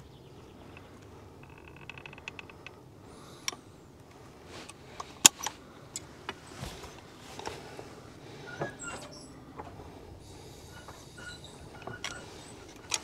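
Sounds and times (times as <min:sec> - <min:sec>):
sealant gun ratcheting ticks: 0:00.7 - 0:02.8, 0:12.0 - 0:13.0.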